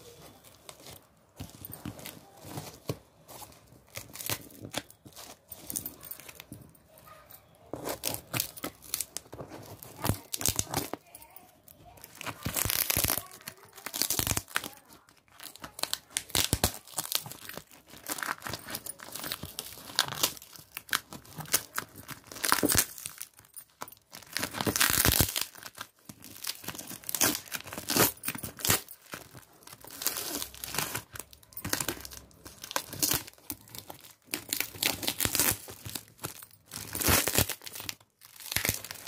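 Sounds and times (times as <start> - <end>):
plastic wrap crinkling: 0.0 - 39.0
packing tape tearing: 7.7 - 11.1, 11.9 - 39.0.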